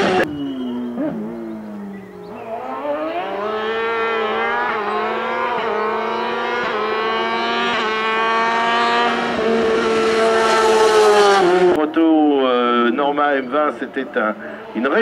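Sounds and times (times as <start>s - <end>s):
race car engine revving: 0.0s - 11.8s.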